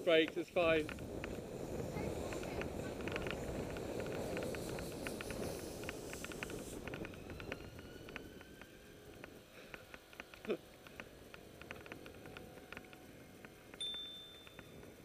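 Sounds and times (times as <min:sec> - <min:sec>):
bicycle clicking as it rolls: 0:00.0 - 0:15.0
rising squeak: 0:06.0 - 0:09.1
bicycle bell ring: 0:13.8 - 0:14.9.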